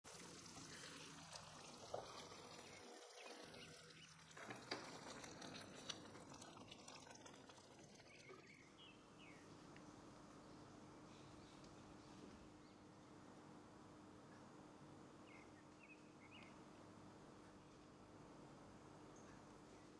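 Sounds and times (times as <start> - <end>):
sauce bubbling in a pan: 0.1 - 9.5.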